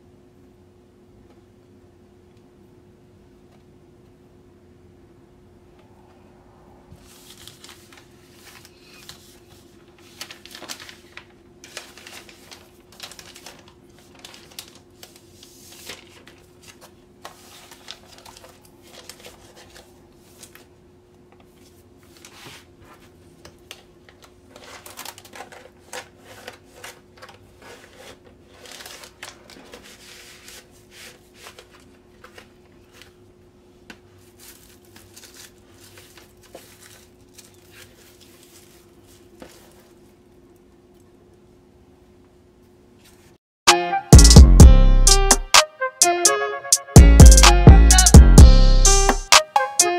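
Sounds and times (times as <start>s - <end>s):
steady low hum: 0.0s - 8.6s
plastic sleeves crinkling: 7.0s - 20.7s, 21.4s - 33.2s, 33.8s - 41.0s.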